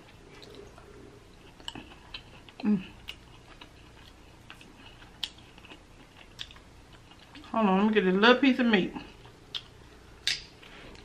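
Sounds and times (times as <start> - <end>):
chewing mouth sounds: 0.0 - 7.5.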